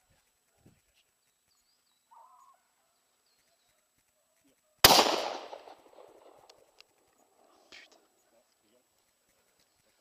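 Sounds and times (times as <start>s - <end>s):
shotgun shot with echo: 4.8s - 6.4s.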